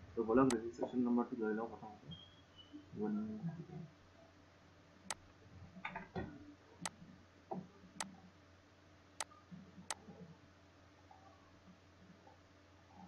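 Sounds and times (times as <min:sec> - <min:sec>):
faint steady hum: 0:00.0 - 0:13.0
computer mouse clicks: 0:09.2 - 0:10.1.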